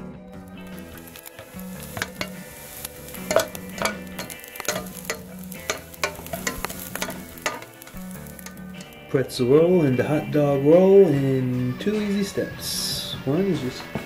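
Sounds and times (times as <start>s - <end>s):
bacon sizzling in a saucepan: 0.4s - 11.0s
utensil scraping and clicking on pan: 0.6s - 9.0s.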